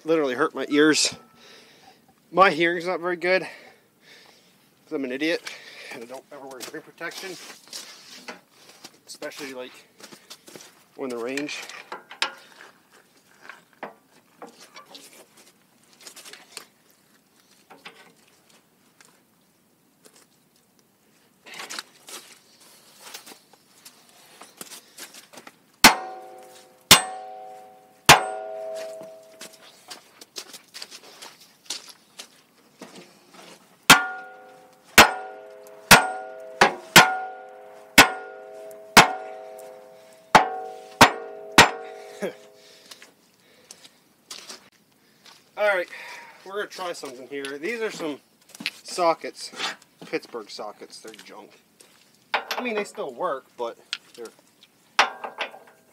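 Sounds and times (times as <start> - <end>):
knocks and rustles of tools: 17.6 - 18.2, 24.4 - 30.0, 32.8 - 42.6, 52.3 - 53.0, 55.0 - 55.9
hammer striking steel: 25.8 - 29.6, 33.9 - 42.6
ringing metallic tone: 25.8 - 29.7, 33.9 - 42.7.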